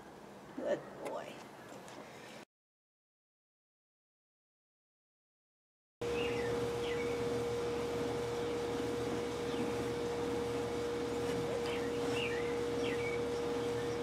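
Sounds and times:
steady outdoor hum: 0:06.0 - 0:14.0
faint bird chirps: 0:06.1 - 0:07.3, 0:11.4 - 0:14.0.

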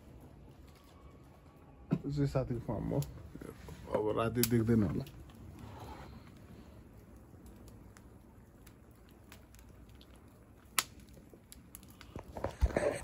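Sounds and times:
campfire crackling and popping: 0:00.0 - 0:13.0.

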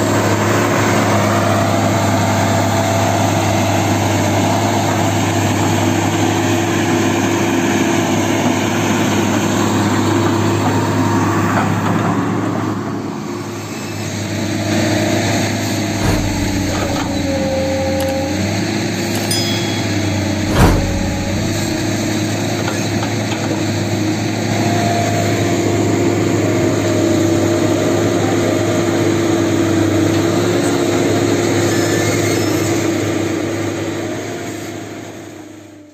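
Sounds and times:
excavator diesel engine running: 0:15.9 - 0:22.4
sharp knocks: 0:16.0 - 0:18.4, 0:19.2 - 0:22.2.

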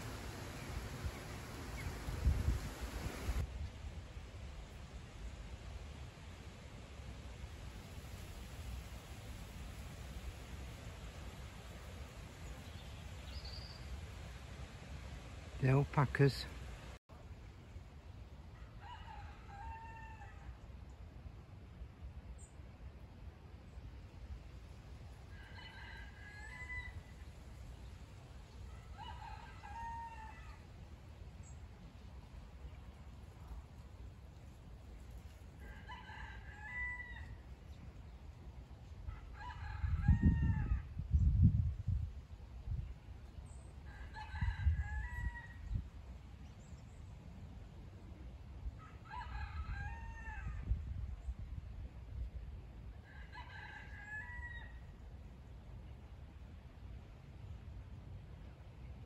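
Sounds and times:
rooster crowing: 0:18.6 - 0:20.6, 0:25.3 - 0:27.2, 0:28.7 - 0:30.6, 0:35.6 - 0:37.4, 0:39.1 - 0:40.9, 0:43.8 - 0:45.7, 0:48.8 - 0:50.7, 0:53.0 - 0:54.9.

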